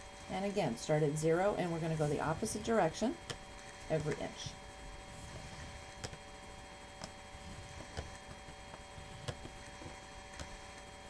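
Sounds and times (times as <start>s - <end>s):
steady electrical hum: 0.0s - 11.0s
stylus clicking and tapping on card: 7.8s - 10.6s.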